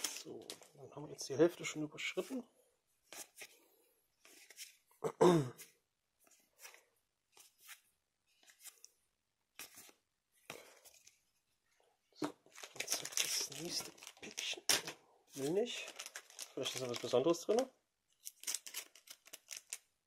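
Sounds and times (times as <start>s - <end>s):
person clearing throat: 5.0s - 5.7s.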